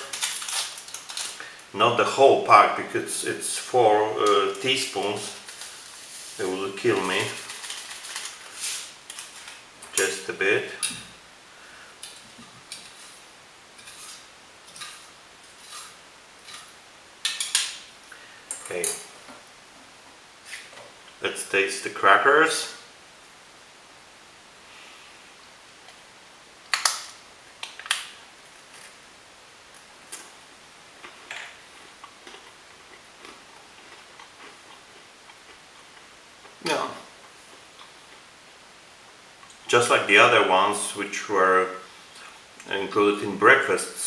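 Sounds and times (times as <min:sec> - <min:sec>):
spoon scraping a bowl: 0:13.8 - 0:16.7
crunching of chewing a cracker: 0:31.0 - 0:36.6.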